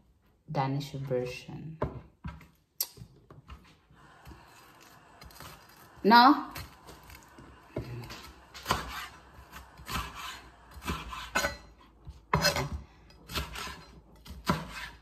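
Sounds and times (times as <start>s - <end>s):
knife chopping on cutting board: 7.8s - 15.0s.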